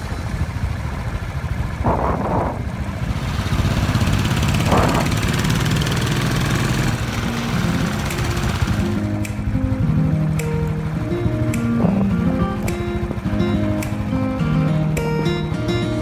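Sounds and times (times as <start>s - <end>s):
motorcycle engine rumbling: 0.0s - 16.0s
wind on microphone: 1.6s - 5.7s.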